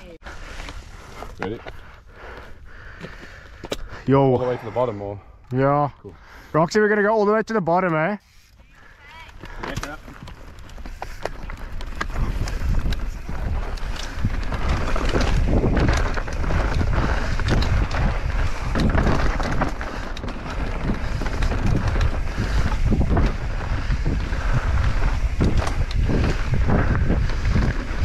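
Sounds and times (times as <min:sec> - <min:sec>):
wind buffeting microphone: 0:08.8 - 0:28.0
bike rattling clicks and knocks: 0:09.0 - 0:28.0
tyres crunching over dirt: 0:09.1 - 0:28.0.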